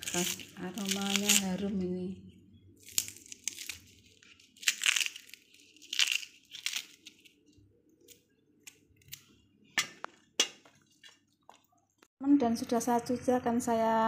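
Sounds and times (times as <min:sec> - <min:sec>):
plant sheaths tearing: 0:00.0 - 0:01.6, 0:02.8 - 0:07.4.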